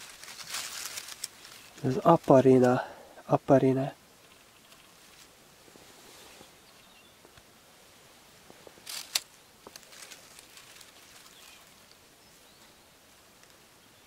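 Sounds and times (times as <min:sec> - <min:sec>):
dry leaves rustling and crackling: 0:00.0 - 0:02.8, 0:04.7 - 0:06.5, 0:08.5 - 0:13.7.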